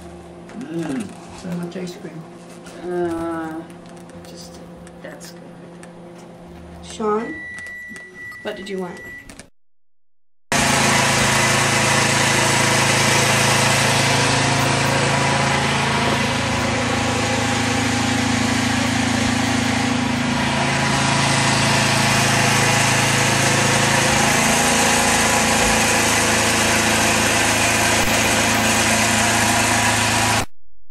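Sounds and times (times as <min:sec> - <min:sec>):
snowblower engine running: 0:10.5 - 0:30.5.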